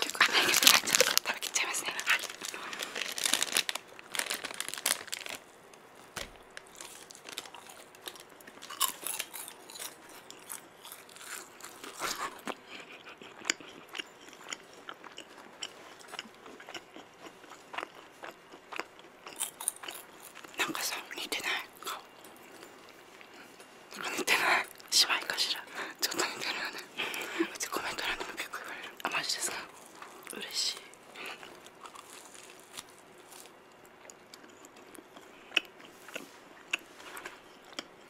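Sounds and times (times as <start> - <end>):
crunching and chewing snack: 0.0 - 5.6, 6.2 - 24.9, 26.1 - 38.0
packet rustling: 0.0 - 9.4.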